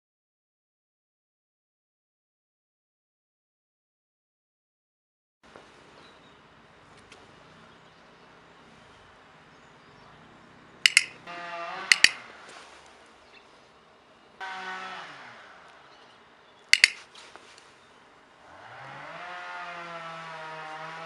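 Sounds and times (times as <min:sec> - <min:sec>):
training clicker double click: 0:10.8 - 0:11.2, 0:11.9 - 0:12.2, 0:16.7 - 0:17.0.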